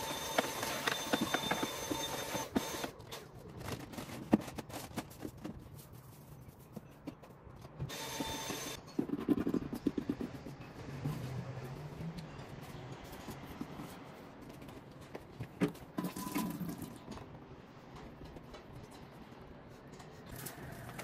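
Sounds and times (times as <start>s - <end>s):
small machine whining: 7.9s - 8.8s.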